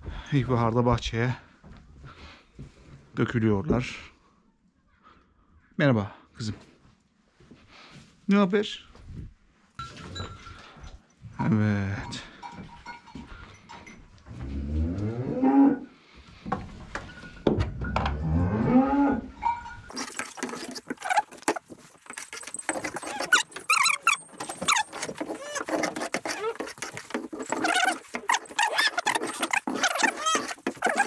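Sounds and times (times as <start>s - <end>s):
cattle mooing: 18.2s - 19.5s
broom scraping barn floor: 19.4s - 31.0s.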